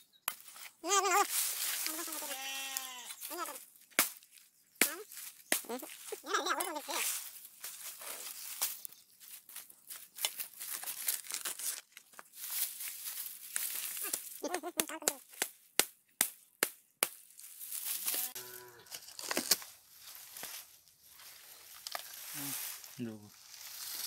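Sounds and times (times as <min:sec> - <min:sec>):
machete hacking wood: 0:03.9 - 0:05.7
fibrous sheaths ripping: 0:10.8 - 0:12.0, 0:17.9 - 0:19.7.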